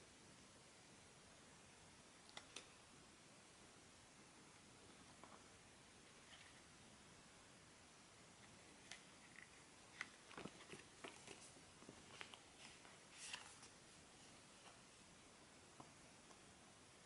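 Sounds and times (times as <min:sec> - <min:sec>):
paper packaging rustling: 0:08.8 - 0:13.8.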